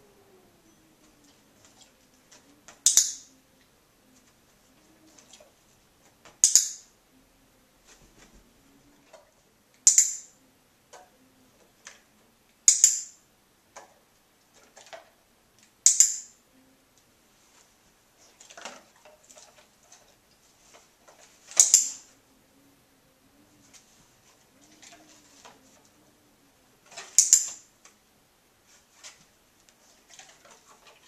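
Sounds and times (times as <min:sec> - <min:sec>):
dog-training clicker double clicks: 0:06.4 - 0:06.8, 0:09.8 - 0:10.3, 0:12.7 - 0:13.2, 0:15.8 - 0:16.3.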